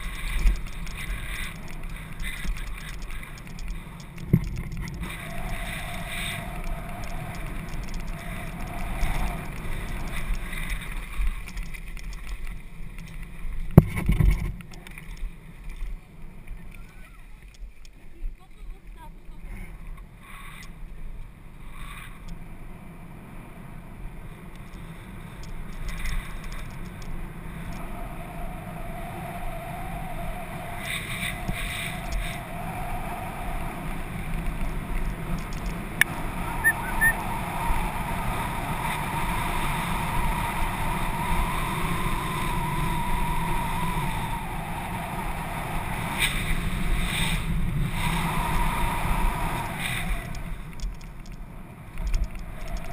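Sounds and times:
sharp clicks: 0:00.0 - 0:15.9, 0:34.3 - 0:37.2, 0:49.6 - 0:52.9
hum: 0:00.0 - 0:20.0, 0:21.3 - 0:52.9
wind rush on microphone: 0:00.0 - 0:20.6, 0:21.3 - 0:52.9.

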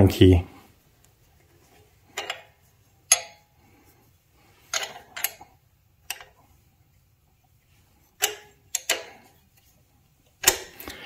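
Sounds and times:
wrench clinking on metal nut: 0:02.2 - 0:02.5, 0:03.1 - 0:03.5, 0:04.7 - 0:05.4, 0:06.1 - 0:06.4, 0:08.2 - 0:09.2.

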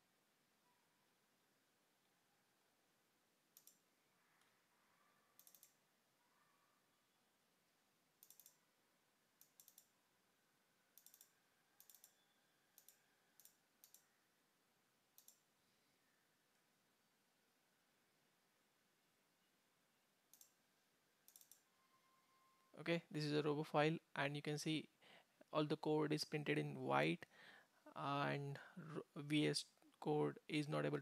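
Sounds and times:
computer mouse clicks: 0:03.5 - 0:04.5, 0:05.4 - 0:05.8, 0:08.2 - 0:08.6, 0:09.4 - 0:10.0, 0:11.0 - 0:14.1, 0:15.1 - 0:15.5, 0:20.3 - 0:20.6, 0:21.2 - 0:21.7.

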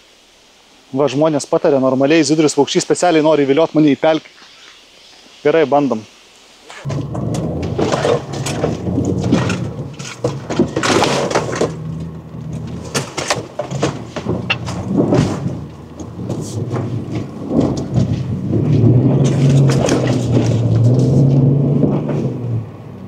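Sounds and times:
car engine under load: 0:06.8 - 0:23.0
knocks and thuds on car body: 0:06.9 - 0:20.8.

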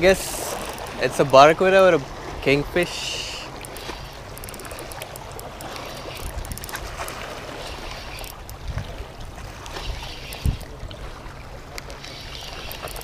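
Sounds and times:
water lapping: 0:00.0 - 0:13.0
faint clicks: 0:00.5 - 0:01.0, 0:03.5 - 0:08.6, 0:11.7 - 0:13.0
wind buffeting microphone: 0:03.5 - 0:11.6.

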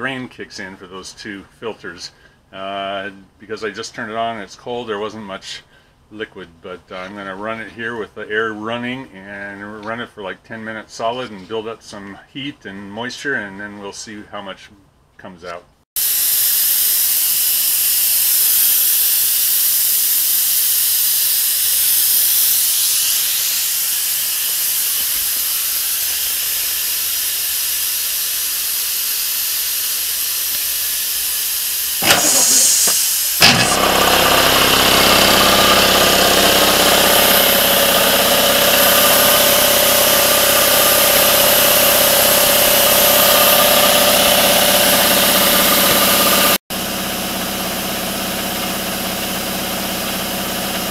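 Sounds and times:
compressed air hissing: 0:16.0 - 0:46.6
air compressor pump humming: 0:16.0 - 0:50.9.

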